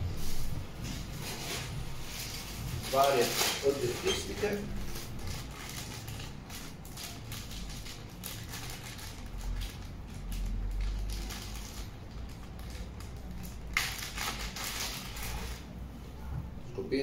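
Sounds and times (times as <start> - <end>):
plastic bag rustling: 0.0 - 15.8.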